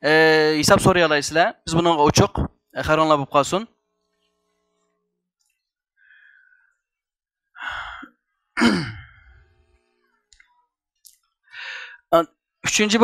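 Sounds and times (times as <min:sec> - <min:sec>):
man sighing: 0:07.6 - 0:09.4
man breathing into microphone: 0:11.5 - 0:12.0.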